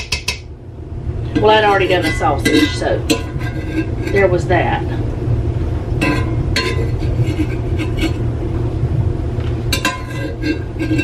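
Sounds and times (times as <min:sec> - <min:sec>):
steady low hum: 0:00.0 - 0:11.0
spoon clinking on metal pots: 0:01.4 - 0:04.3, 0:06.0 - 0:08.2, 0:09.7 - 0:11.0
spoon scraping skillet: 0:01.4 - 0:04.5, 0:06.0 - 0:08.3, 0:09.7 - 0:11.0.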